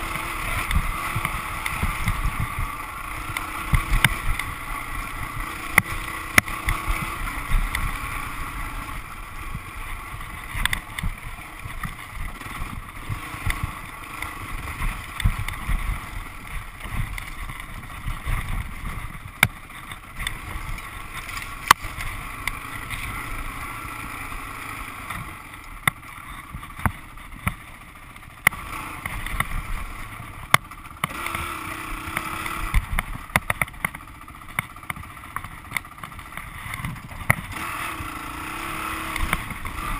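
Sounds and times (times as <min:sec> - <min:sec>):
dirt bike engine: 0:00.0 - 0:39.9
sharp knocks and clicks: 0:26.7 - 0:27.6, 0:32.1 - 0:37.6.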